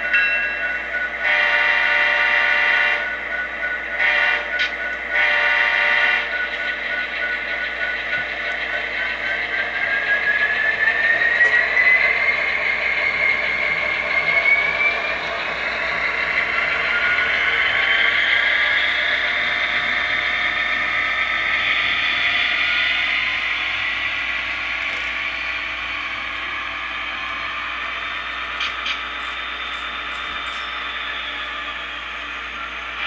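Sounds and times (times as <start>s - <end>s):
diesel locomotive sound from small speaker: 0.0s - 33.0s
rising whine: 7.7s - 33.0s.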